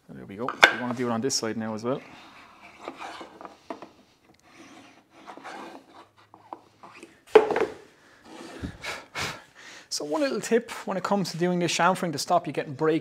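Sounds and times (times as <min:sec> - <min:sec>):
marking tool scratching wood: 0:02.0 - 0:03.6, 0:04.4 - 0:07.1
wooden knock on bench: 0:07.4 - 0:07.8.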